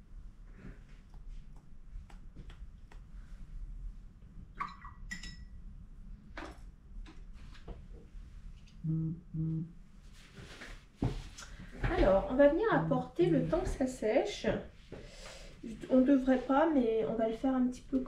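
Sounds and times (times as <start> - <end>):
low hum: 8.0 - 10.0.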